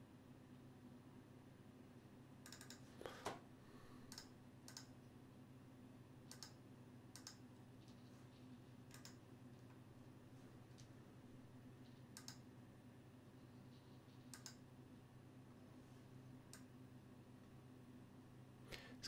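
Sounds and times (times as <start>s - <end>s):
low steady hum: 0.0s - 19.0s
mouse and keyboard clicks: 2.4s - 3.4s, 4.1s - 4.9s, 6.3s - 8.1s, 8.9s - 9.2s, 11.8s - 12.4s, 13.7s - 14.6s.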